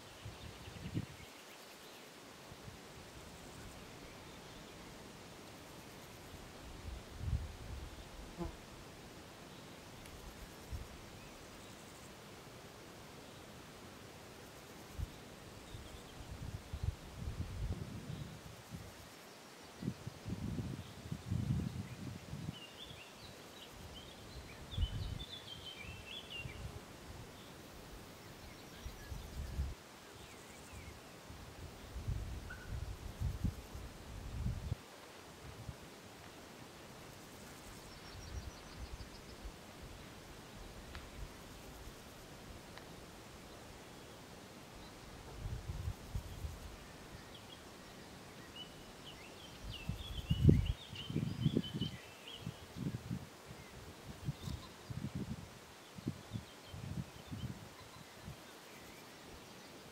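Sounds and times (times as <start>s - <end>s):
small songbirds chirping: 0.0s - 2.3s, 3.3s - 8.5s, 9.3s - 34.9s, 37.0s - 42.2s, 42.8s - 59.9s
wind rumbling on microphone: 0.2s - 1.3s, 6.8s - 8.0s, 16.2s - 19.0s, 19.8s - 22.6s, 24.5s - 25.3s, 28.8s - 29.8s, 31.9s - 34.8s, 45.2s - 46.8s, 49.6s - 58.3s.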